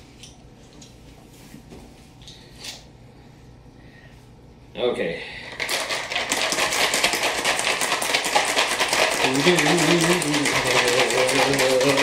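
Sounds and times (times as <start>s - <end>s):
ice rattling in a cocktail shaker: 5.5s - 12.0s.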